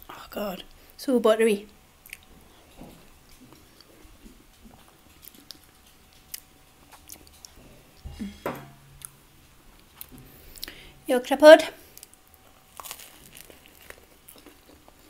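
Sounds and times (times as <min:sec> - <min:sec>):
chewing mashed potato: 0:02.0 - 0:08.0, 0:11.9 - 0:15.0
person speaking: 0:08.1 - 0:08.8, 0:11.0 - 0:11.8.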